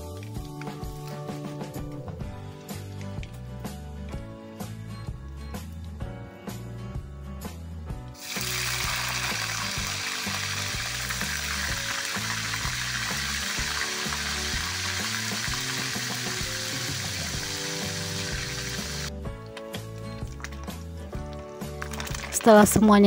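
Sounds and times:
background music: 0.0s - 23.0s
fish sizzling in hot oil: 8.2s - 19.1s.

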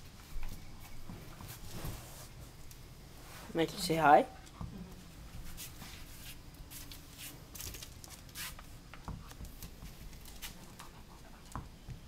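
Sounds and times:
scratchy rustles: 5.4s - 8.6s.

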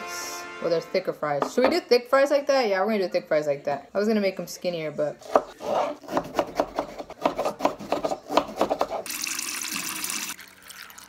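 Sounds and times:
knife chopping on cutting board: 5.2s - 9.1s
tap water running into cup: 9.1s - 11.0s.

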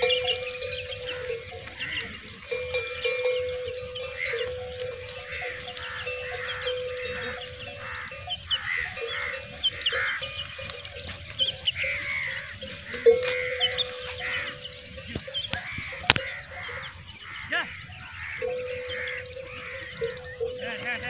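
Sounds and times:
small birds chirping: 0.0s - 21.0s
livestock bleating: 4.0s - 10.3s, 15.2s - 21.0s.

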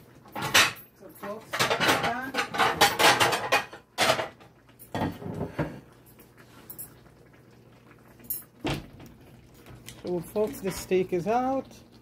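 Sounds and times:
cookware and utensils clattering: 0.2s - 7.1s.

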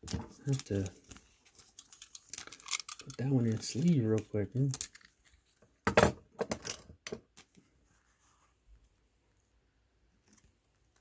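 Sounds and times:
plastic sleeve crinkling: 0.0s - 5.6s.

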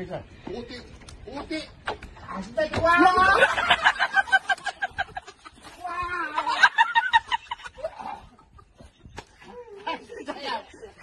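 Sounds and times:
people laughing: 3.0s - 11.0s.

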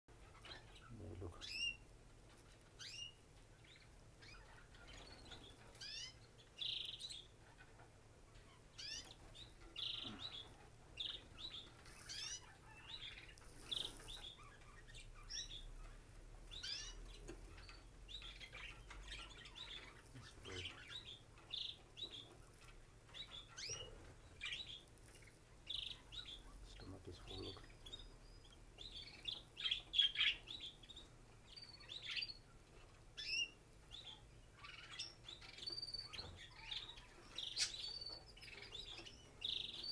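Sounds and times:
bird chick cheeping: 8.4s - 39.9s.

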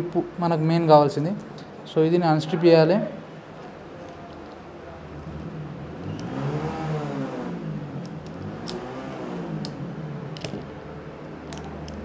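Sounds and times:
steady low hum: 0.0s - 12.0s
engine revving: 5.3s - 10.3s.

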